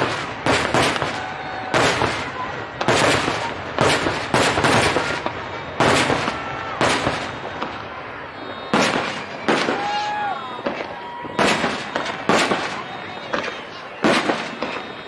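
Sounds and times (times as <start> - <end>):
firework shells bursting: 0.0 - 15.0.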